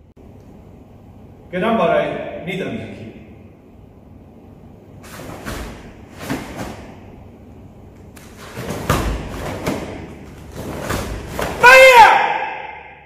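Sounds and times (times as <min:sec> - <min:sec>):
bare feet thudding on mats: 0:05.0 - 0:07.1, 0:08.1 - 0:11.6
cloth swishing and snapping: 0:05.0 - 0:07.1, 0:08.0 - 0:11.6.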